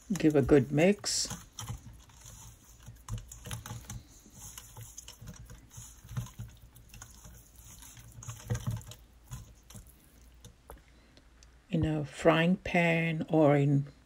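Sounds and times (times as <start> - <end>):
hands mixing raw chicken in bowl: 0.0 - 10.8.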